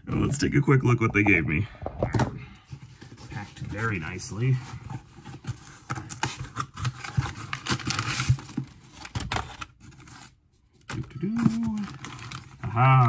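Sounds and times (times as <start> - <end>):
cardboard box tearing open: 4.8 - 10.3.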